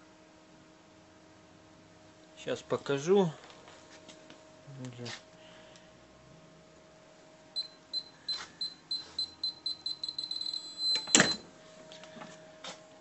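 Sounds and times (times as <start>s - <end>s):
heat press timer beeping: 7.6s - 11.4s.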